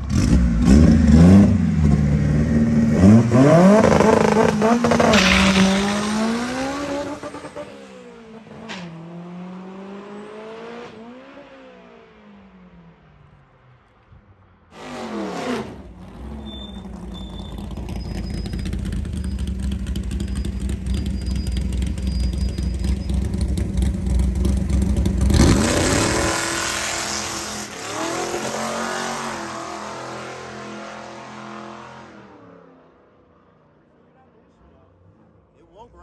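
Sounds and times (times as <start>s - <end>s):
race car engine revving and launching: 0.0s - 12.5s, 14.7s - 24.0s, 25.0s - 32.8s.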